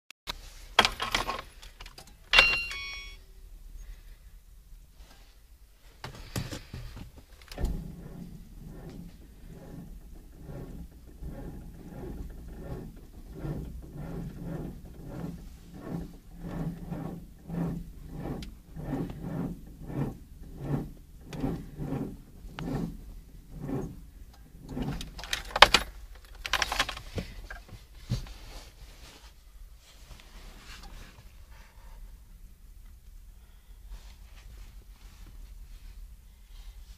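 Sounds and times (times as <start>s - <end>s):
car starter cranking engine: 7.3s - 27.2s.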